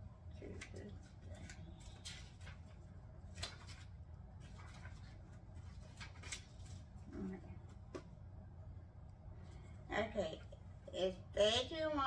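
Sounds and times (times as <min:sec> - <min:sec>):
steady low hum: 0:00.0 - 0:12.0
book pages turning: 0:00.4 - 0:08.1.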